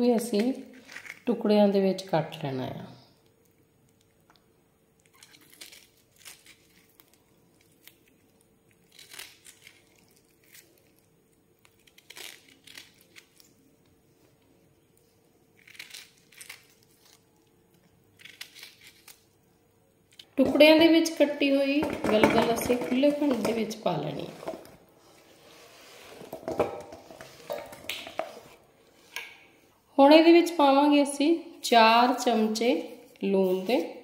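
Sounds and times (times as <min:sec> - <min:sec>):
knife crunching through rind: 0:00.3 - 0:01.3, 0:05.0 - 0:13.7, 0:15.6 - 0:19.3.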